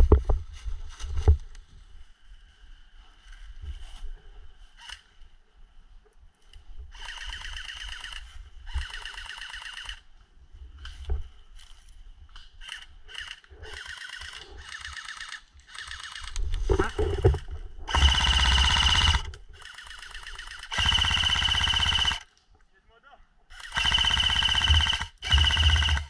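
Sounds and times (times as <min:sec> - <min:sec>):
airsoft gun bursts: 0:17.9 - 0:22.3, 0:23.5 - 0:26.0.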